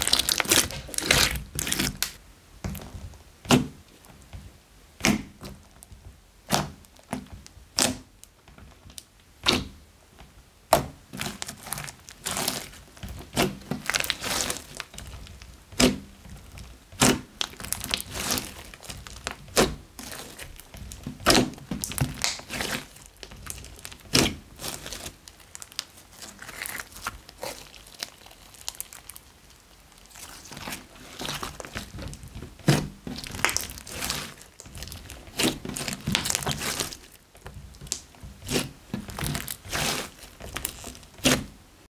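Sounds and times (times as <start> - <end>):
slime popping: 0.0 - 2.2, 10.7 - 41.4
slime crackling and squishing: 0.0 - 4.4, 5.0 - 9.8, 10.7 - 41.9.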